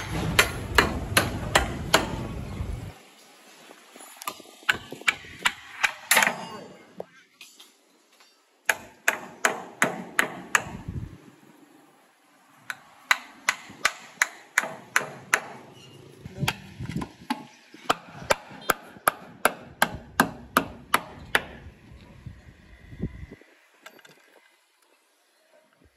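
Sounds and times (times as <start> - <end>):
hammer striking wooden board: 0.0 - 2.3, 13.1 - 15.6, 16.5 - 21.6.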